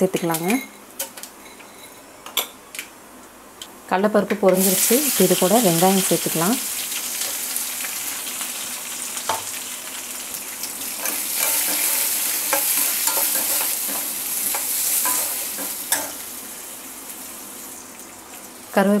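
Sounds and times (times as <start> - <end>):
onions sizzling in hot oil: 4.5 - 19.0.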